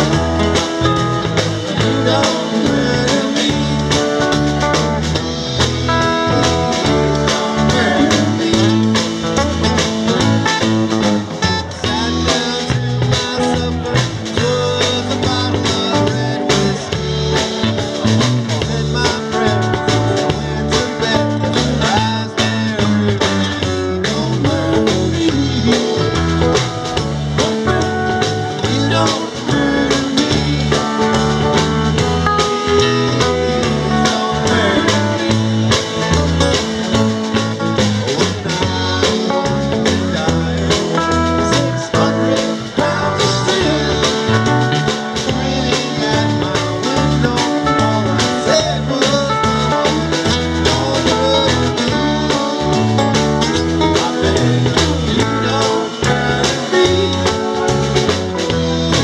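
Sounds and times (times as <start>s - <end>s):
acoustic guitar: 0.0s - 59.0s
drum kit: 0.0s - 59.0s
electric guitars: 0.0s - 59.0s
keyboard: 0.0s - 59.0s.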